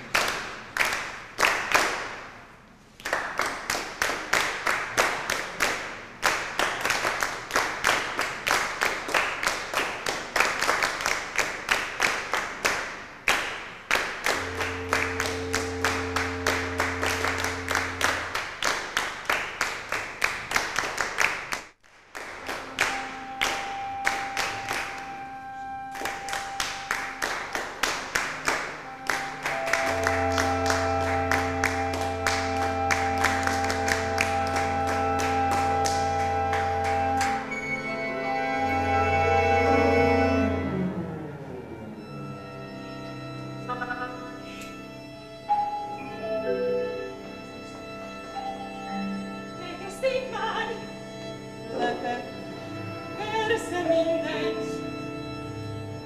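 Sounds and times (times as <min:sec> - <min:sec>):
many hands clapping in rhythm: 0:00.0 - 0:37.8
held orchestral notes: 0:13.9 - 0:20.6, 0:22.4 - 0:56.0.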